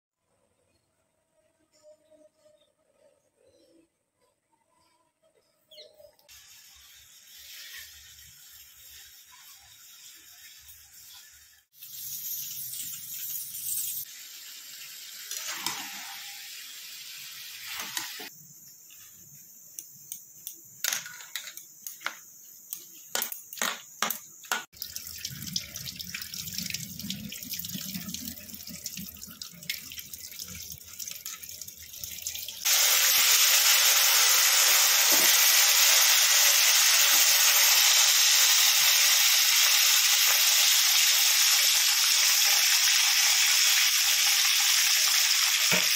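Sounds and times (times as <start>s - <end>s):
fish frying in oil: 6.3s - 13.3s, 24.6s - 45.9s
tap water running: 6.3s - 13.4s, 14.0s - 18.3s, 23.2s - 45.9s.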